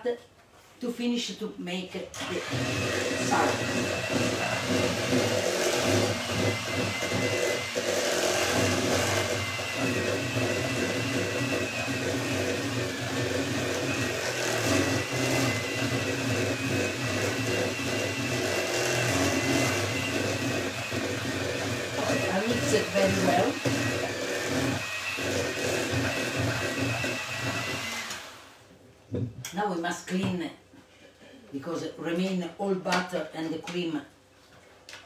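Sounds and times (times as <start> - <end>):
electric hand mixer whining: 2.2 - 28.6.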